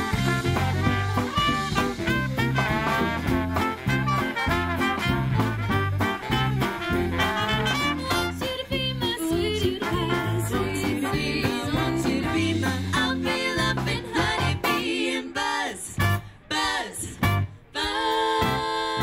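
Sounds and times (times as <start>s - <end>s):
swing band playing: 0.0s - 16.4s, 17.1s - 19.0s
women singing: 8.0s - 19.0s.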